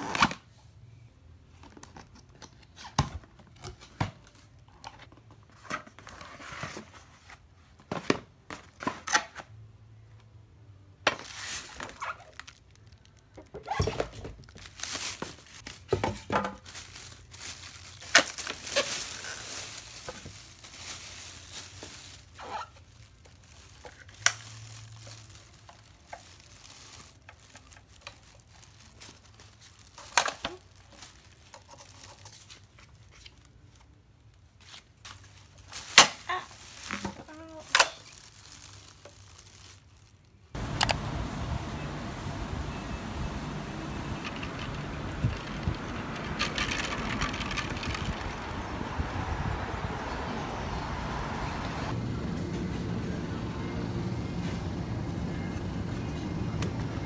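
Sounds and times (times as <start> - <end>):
styrofoam packing rustling: 11.1 - 33.7, 34.6 - 49.2
plastic bag crinkling: 11.2 - 33.7, 35.1 - 50.0.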